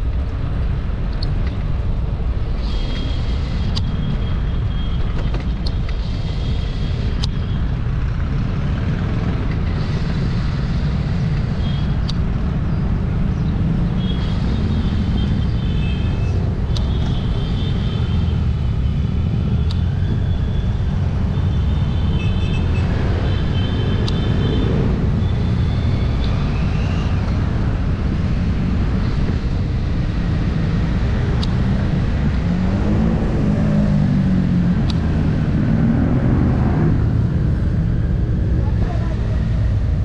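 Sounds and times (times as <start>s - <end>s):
road and traffic noise: 0.0s - 40.0s
vehicle engine humming: 0.0s - 40.0s
wind rumble on microphone: 22.7s - 40.0s.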